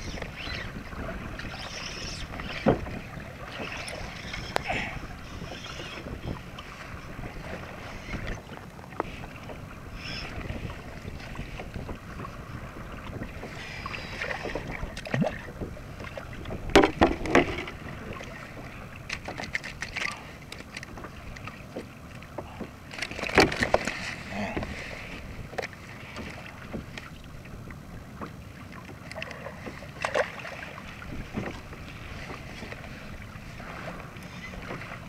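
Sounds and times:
wind on microphone: 0.0s - 19.2s, 30.9s - 35.0s
water moving against kayak: 0.0s - 35.0s.

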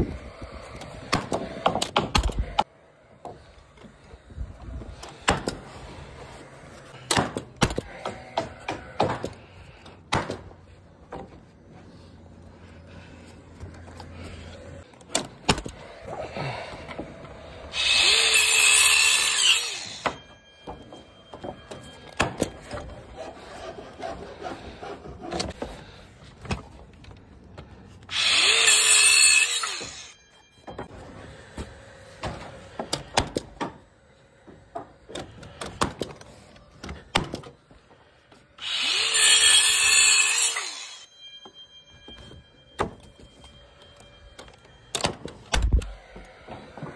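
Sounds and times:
power tool motor running: 17.7s - 20.0s.

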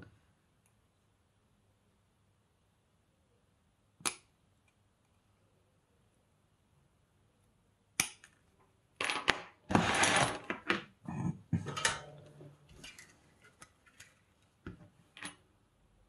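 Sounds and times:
tools knocking and clattering: 11.5s - 13.0s.

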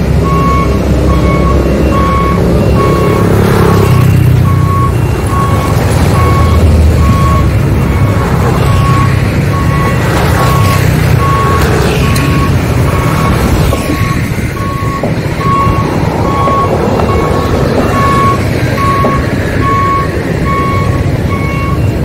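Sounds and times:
road traffic rumble: 0.0s - 22.0s
reversing alarm beeping: 0.1s - 22.0s.

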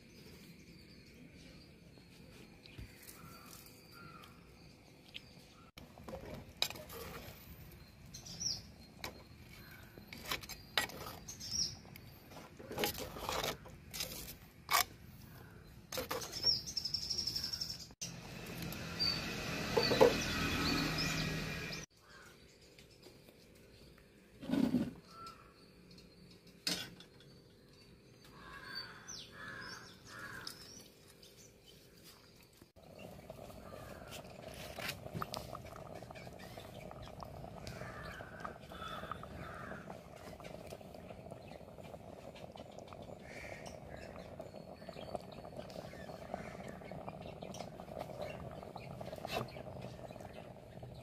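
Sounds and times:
birds chirping: 15.1s - 24.0s, 25.0s - 51.0s.

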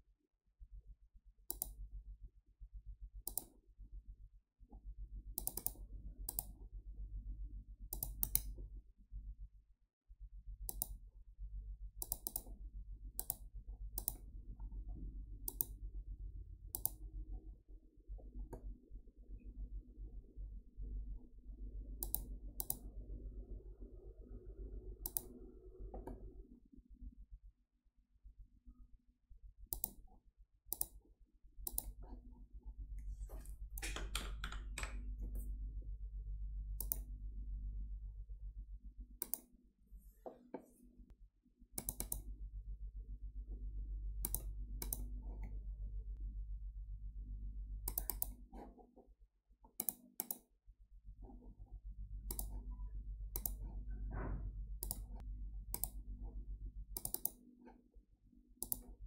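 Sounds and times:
computer mouse clicking: 1.5s - 1.8s, 3.2s - 3.6s, 5.4s - 6.6s, 7.9s - 8.6s, 10.6s - 11.0s, 12.0s - 12.6s, 13.2s - 14.2s, 15.4s - 15.8s, 16.7s - 17.0s, 22.0s - 22.9s, 25.0s - 26.3s, 29.7s - 31.0s, 31.6s - 32.2s, 33.3s - 35.4s, 36.8s - 37.1s, 39.2s - 39.5s, 41.8s - 42.3s, 44.2s - 45.6s, 47.8s - 48.9s, 49.7s - 50.5s, 52.3s - 52.7s, 53.3s - 53.8s, 54.8s - 56.0s, 57.0s - 57.8s, 58.6s - 59.0s
steady low hum: 10.2s - 27.5s, 31.6s - 40.0s, 50.9s - 59.0s.

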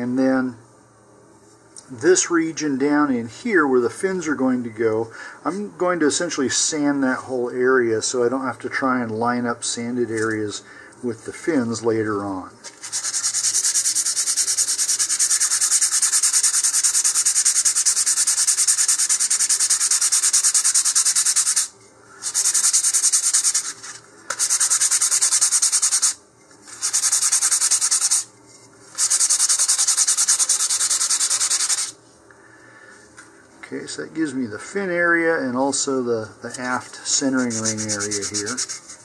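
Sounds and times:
sandpaper rubbing on a tube: 12.7s - 28.3s, 28.9s - 32.0s, 36.5s - 39.0s.

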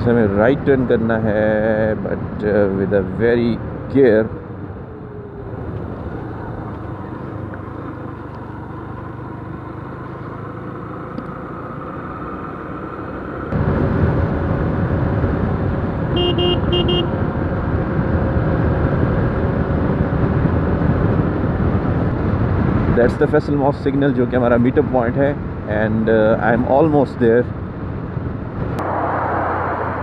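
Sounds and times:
road and wind noise: 0.0s - 30.0s
vehicle horn beeping: 16.2s - 17.2s.

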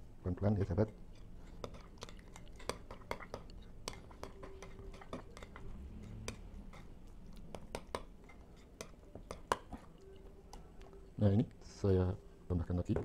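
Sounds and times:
spoon scraping a glass bowl: 0.8s - 10.0s.

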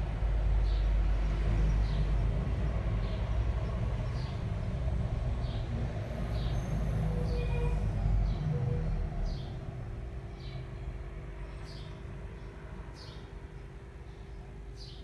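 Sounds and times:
low rumble: 0.0s - 10.2s.

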